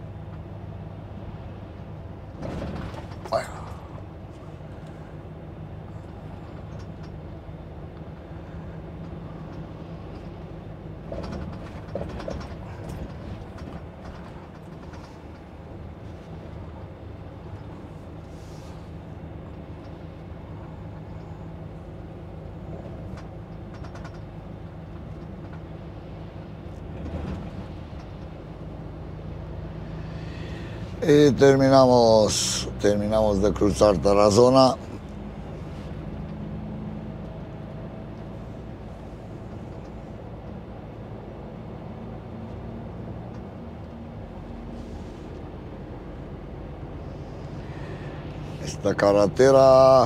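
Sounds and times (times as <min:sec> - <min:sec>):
lorry engine humming: 0:00.0 - 0:50.0
road noise: 0:00.0 - 0:50.0
knocks and clicks in cab: 0:02.3 - 0:03.9, 0:11.0 - 0:15.9, 0:22.8 - 0:25.7.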